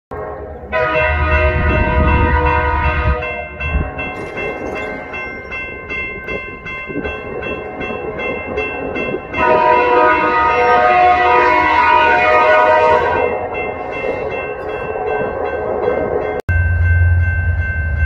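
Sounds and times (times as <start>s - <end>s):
locomotive air horn chord: 0.1s - 3.4s, 9.4s - 13.5s.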